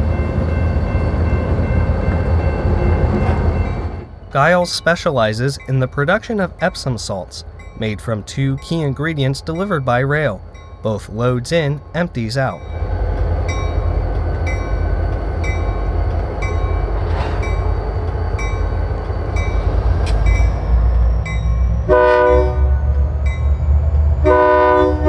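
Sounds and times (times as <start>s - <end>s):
locomotive bell ringing: 0.0s - 23.7s
diesel locomotive rumbling: 0.0s - 25.0s
locomotive air horn blast: 21.9s - 22.8s, 24.2s - 25.0s.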